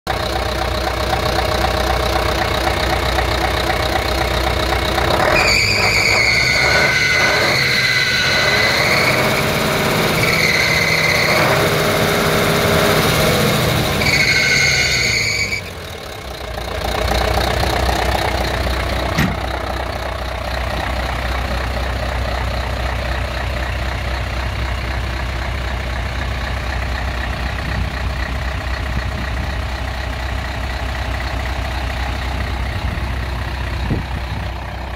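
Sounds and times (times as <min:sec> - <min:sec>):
diesel engine idling: 0:00.1 - 0:34.9
high-pitched whistling: 0:05.4 - 0:09.4.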